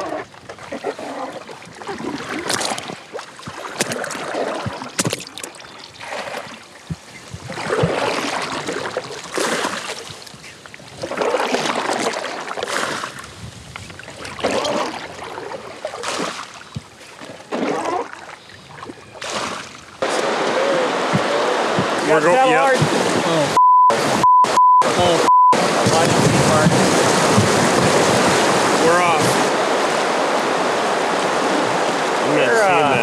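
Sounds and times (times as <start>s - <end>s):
water splashing from scoops: 0.0s - 33.0s
jug knocking against boat: 21.0s - 23.0s, 25.8s - 28.4s.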